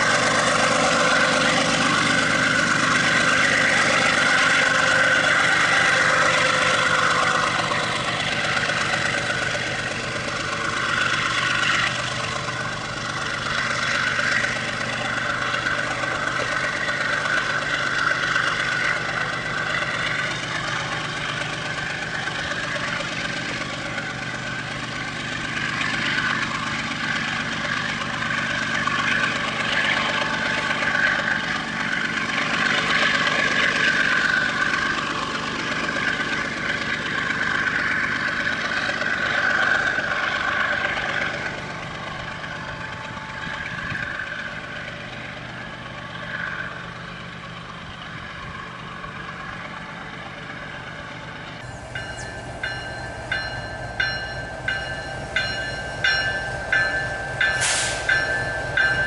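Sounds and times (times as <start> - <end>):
diesel engines running: 0.0 - 59.0
wagons rolling over rails: 0.0 - 59.0
high-pitched whine: 51.6 - 59.0.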